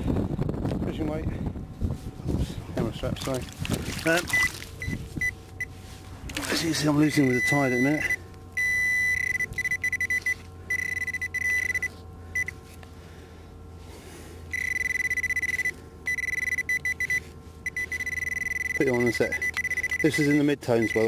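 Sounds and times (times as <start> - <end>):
metal detector beeping: 4.3 - 5.8, 6.6 - 12.6, 14.5 - 21.0.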